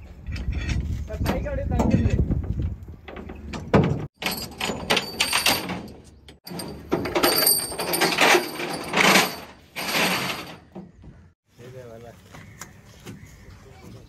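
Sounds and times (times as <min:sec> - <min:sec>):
chains clinking on metal deck: 0:04.2 - 0:10.6.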